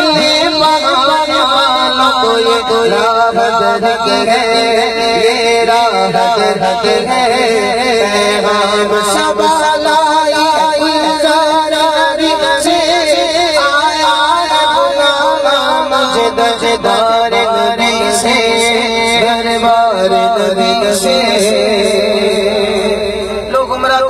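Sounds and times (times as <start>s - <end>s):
man singing into a microphone: 0.0s - 24.0s.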